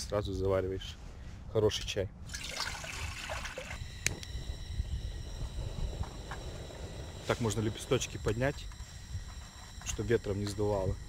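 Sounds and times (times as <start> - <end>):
wind buffeting microphone: 3.1 - 11.0.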